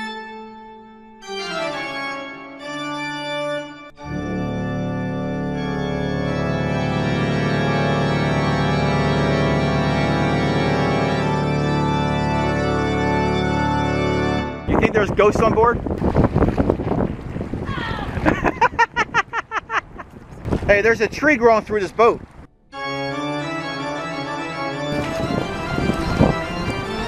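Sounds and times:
organ music: 0:00.0 - 0:15.5, 0:22.5 - 0:27.0.

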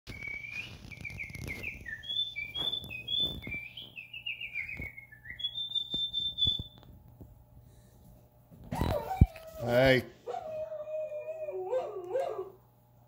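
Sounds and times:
high bird-like chirping: 0:00.1 - 0:06.8.

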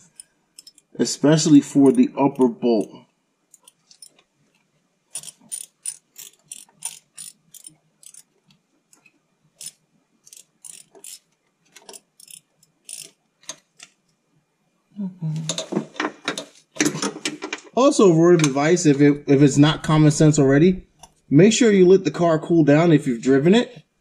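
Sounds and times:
ratchet clicking: 0:00.0 - 0:01.0, 0:03.5 - 0:04.2, 0:05.1 - 0:13.8.

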